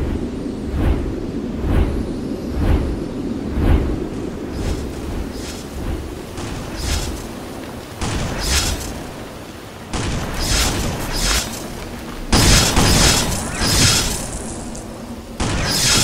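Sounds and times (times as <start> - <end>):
hiss of scattering debris: 4.6 - 16.0.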